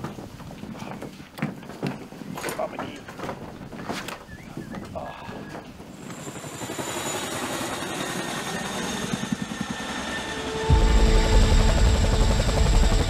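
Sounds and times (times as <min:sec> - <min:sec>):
helicopter rotor blades beating: 0:05.6 - 0:13.0.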